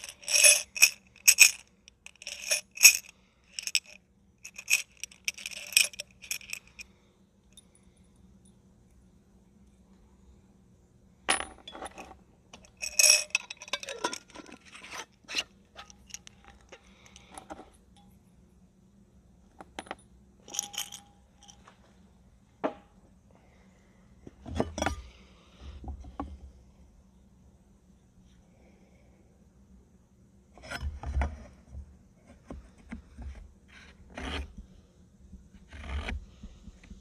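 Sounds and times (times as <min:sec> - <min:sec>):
nails clinking together: 0:00.0 - 0:06.8, 0:11.3 - 0:15.0.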